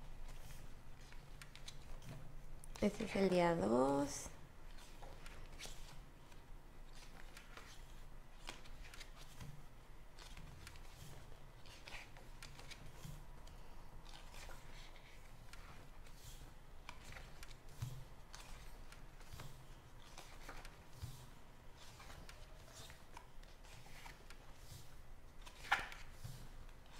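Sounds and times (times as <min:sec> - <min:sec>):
paper pages rustling: 0:00.1 - 0:03.2, 0:04.7 - 0:26.9.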